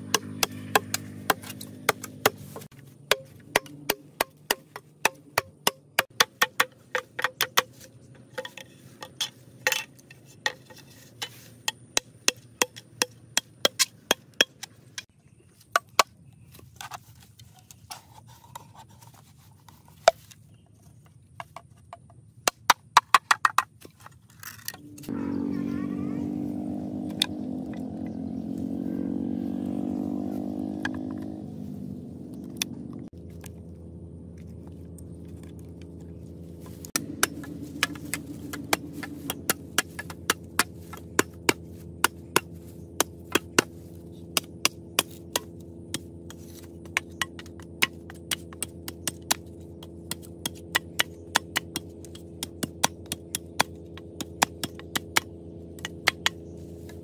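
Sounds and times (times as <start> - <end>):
passing engine: 0.0 - 4.1, 24.8 - 50.0
knife tapping bamboo: 0.0 - 16.9, 36.6 - 57.0
steady low hum: 24.6 - 57.0.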